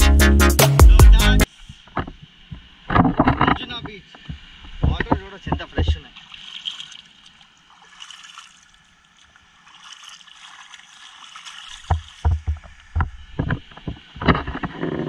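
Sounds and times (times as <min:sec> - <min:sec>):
hand splashing through water: 0:06.1 - 0:12.8.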